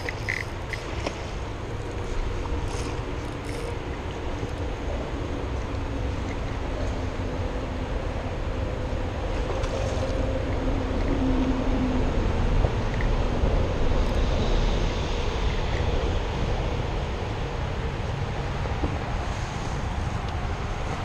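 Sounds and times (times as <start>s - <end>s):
fishing reel whirring: 0.0s - 1.1s, 2.6s - 3.8s
wind rumbling on microphone: 0.0s - 21.0s.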